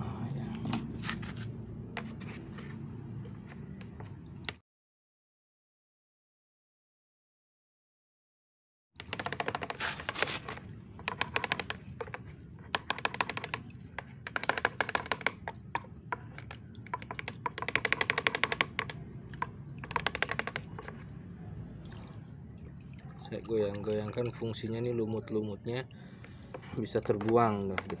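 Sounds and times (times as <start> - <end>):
water splashing in bucket: 9.0 - 28.0.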